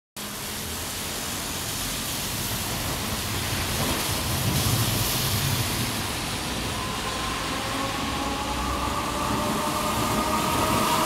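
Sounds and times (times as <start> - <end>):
car tyres hissing on wet road: 0.2 - 6.7
steady rain: 0.2 - 11.0.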